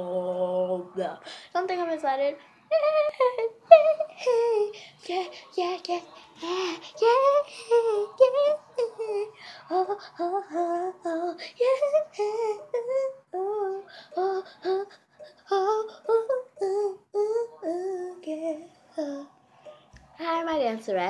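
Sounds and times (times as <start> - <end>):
girl singing: 2.7 - 19.3.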